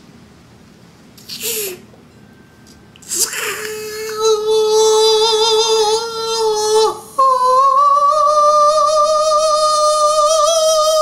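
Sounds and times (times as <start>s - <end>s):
man wailing war cry: 3.6s - 11.0s.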